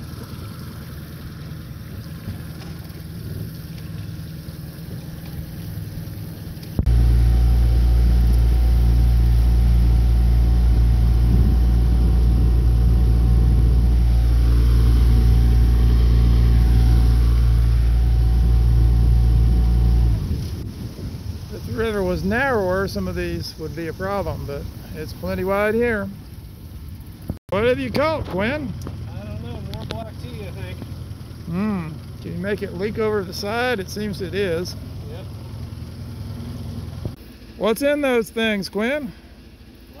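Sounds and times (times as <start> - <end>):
water noise: 0.0 - 29.1
faint wind: 0.0 - 40.0
outboard motor running: 0.0 - 40.0.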